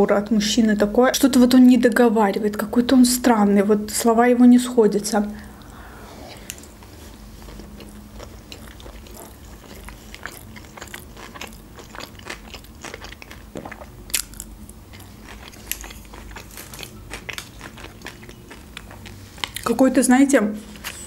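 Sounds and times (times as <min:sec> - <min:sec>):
chewing crunchy sushi: 0:06.4 - 0:19.7.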